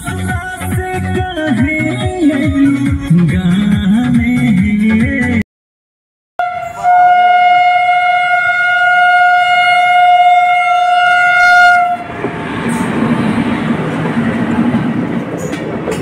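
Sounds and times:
train horn blast: 6.4s - 12.1s
train coaches rushing past: 11.7s - 16.0s.

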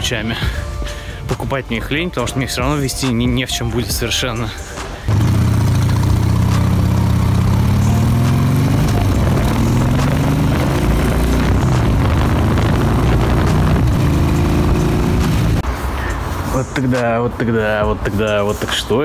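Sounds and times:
motorcycle engine accelerating: 5.1s - 15.6s.

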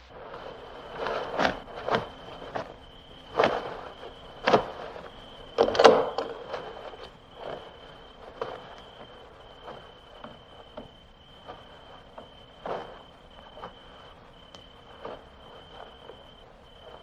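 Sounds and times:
cricket trilling: 0.0s - 17.0s.

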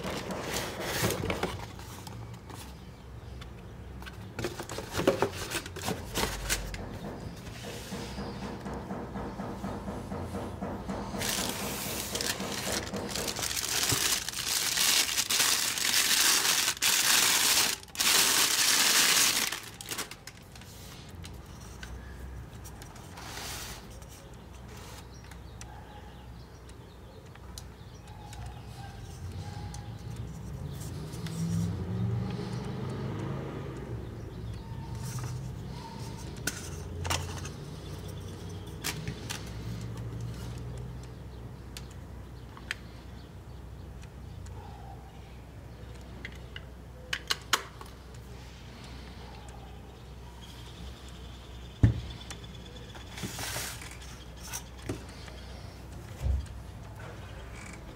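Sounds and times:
handling of lens: 0.0s - 6.8s
plastic bag crinkling: 11.2s - 20.6s.

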